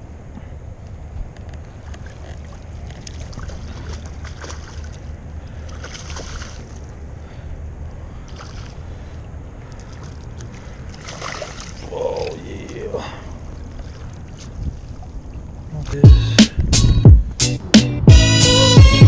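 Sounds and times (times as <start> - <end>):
low wind rumble on microphone: 0.0 - 18.8
fish splashing at water surface: 2.0 - 6.9, 9.7 - 12.4.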